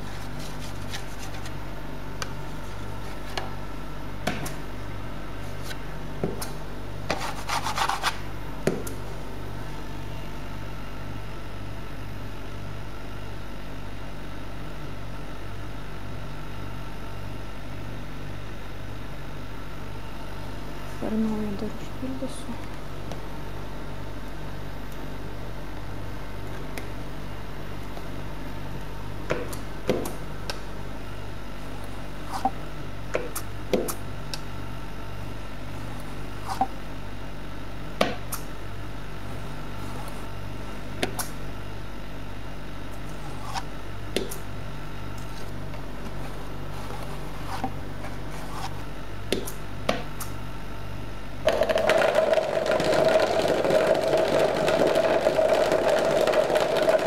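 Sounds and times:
steady low hum: 0.0s - 57.0s
machine running with whine: 50.8s - 57.0s.

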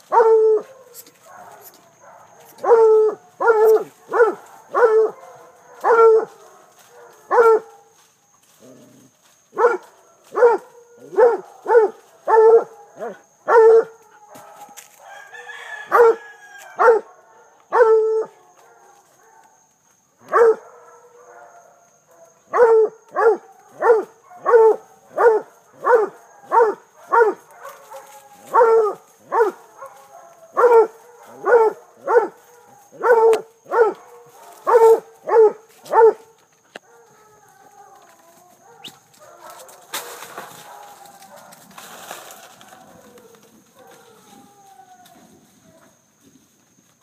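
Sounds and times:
dog barking: 0.0s - 8.0s, 9.5s - 15.2s, 15.8s - 16.2s, 16.8s - 19.6s, 20.2s - 37.3s, 38.5s - 41.7s, 43.8s - 44.2s.

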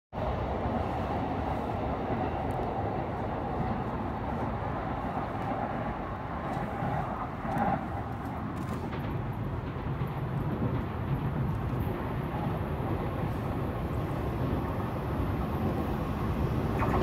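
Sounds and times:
train wheels rumbling on rail: 0.2s - 16.8s
brief tone: 16.8s - 17.0s.

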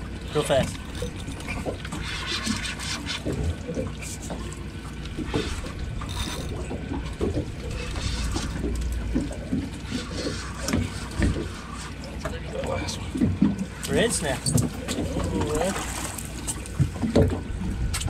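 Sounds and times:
water sloshing against boat hull: 0.0s - 18.0s
wind rumble on microphone: 16.8s - 18.0s.

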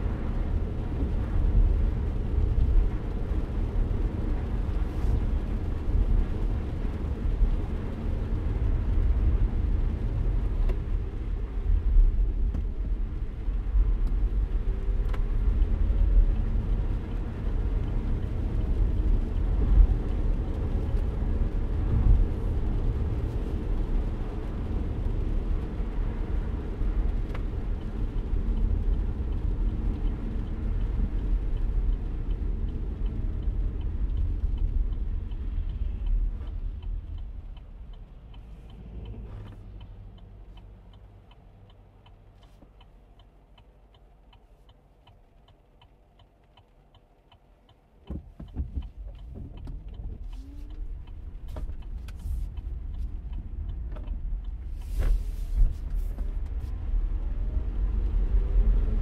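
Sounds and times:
car road and engine rumble: 0.0s - 59.0s
turn signal ticking: 0.2s - 57.4s
windshield wipers sweeping: 48.1s - 56.9s.

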